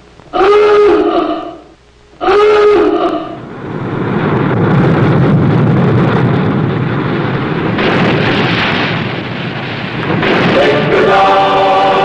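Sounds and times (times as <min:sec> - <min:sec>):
horn-like tone: 0:00.3 - 0:03.4
loud rushing rumble: 0:03.2 - 0:12.0.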